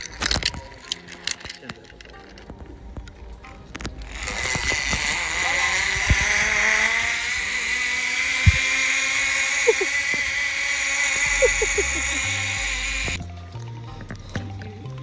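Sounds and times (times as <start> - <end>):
zip line pulley whirring on cable: 3.8 - 13.2.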